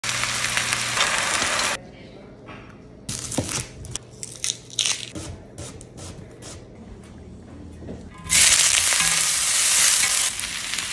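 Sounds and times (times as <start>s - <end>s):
pan sizzling: 0.0s - 1.8s, 8.2s - 10.9s.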